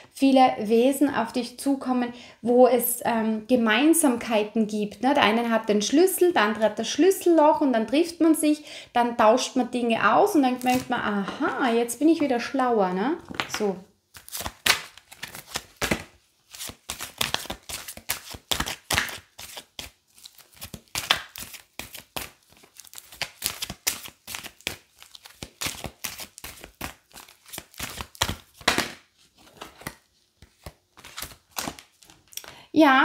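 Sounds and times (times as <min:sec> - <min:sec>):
cards being shuffled: 0:13.4 - 0:32.5.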